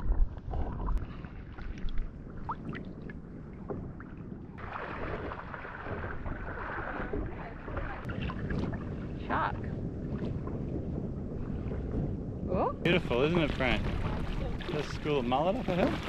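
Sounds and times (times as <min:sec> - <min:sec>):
muffled underwater rumble: 0:00.0 - 0:16.0
shallow water lapping and splashing: 0:00.0 - 0:16.0
wind on microphone: 0:00.0 - 0:16.0.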